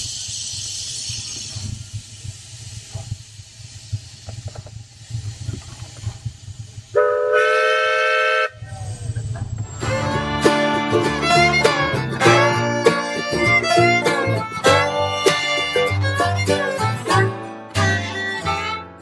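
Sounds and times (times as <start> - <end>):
steam locomotive rumbling: 0.0 - 18.8
steam hissing: 0.0 - 18.9
steam whistle blast: 6.9 - 9.0, 9.7 - 19.0.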